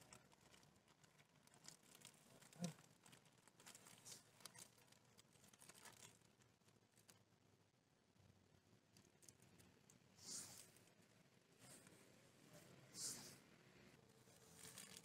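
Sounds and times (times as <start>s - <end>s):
plastic bag crinkling: 0.0s - 7.3s, 14.2s - 15.0s.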